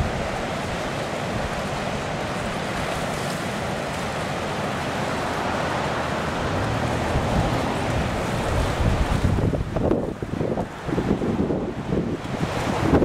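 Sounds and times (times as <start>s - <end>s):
ocean surf: 0.0s - 13.0s
wind: 0.0s - 13.0s
wind buffeting microphone: 6.4s - 13.0s.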